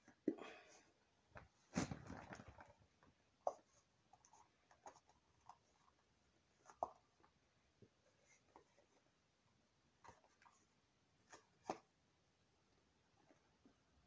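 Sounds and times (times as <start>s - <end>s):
plastic bottle rustle: 1.4s - 3.1s.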